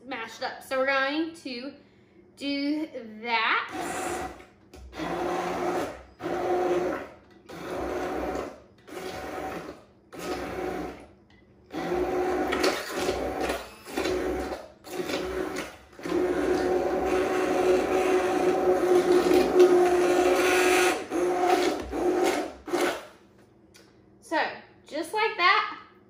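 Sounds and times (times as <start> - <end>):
immersion blender running: 3.7 - 11.1, 11.7 - 23.1.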